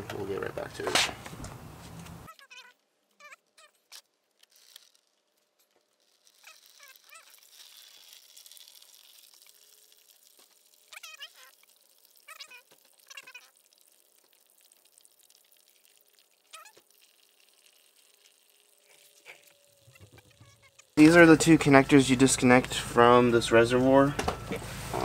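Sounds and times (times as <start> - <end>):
fluid pouring into plastic pan: 5.9 - 20.7.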